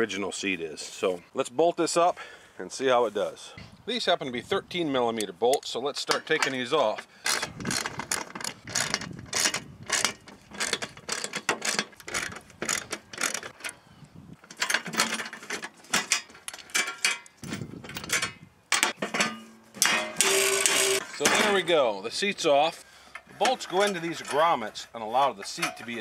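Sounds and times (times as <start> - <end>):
socket ratchet clicking: 7.2 - 13.8, 20.1 - 21.2.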